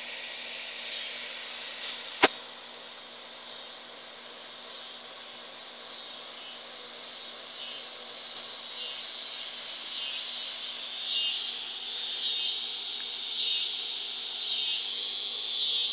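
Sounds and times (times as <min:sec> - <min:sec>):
insects buzzing: 0:00.0 - 0:15.9
faint click: 0:01.8 - 0:02.4, 0:08.3 - 0:08.6.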